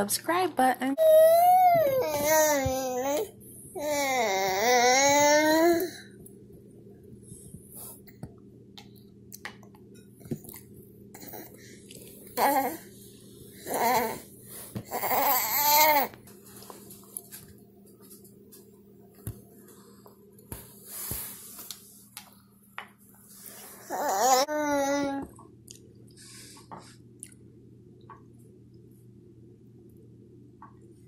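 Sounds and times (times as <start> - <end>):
steady low hum: 0.0 - 31.0
toddler babbling: 1.0 - 6.0, 14.9 - 16.1, 23.9 - 25.3.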